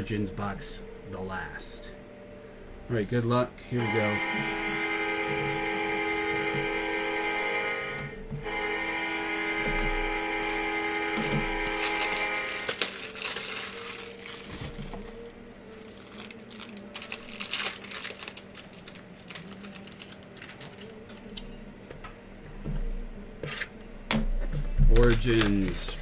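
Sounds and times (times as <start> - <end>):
guitar music: 3.6 - 23.8
plastic wrap crinkling: 10.4 - 21.4, 24.9 - 26.0
knife slitting plastic wrap: 11.0 - 21.4, 24.9 - 26.0.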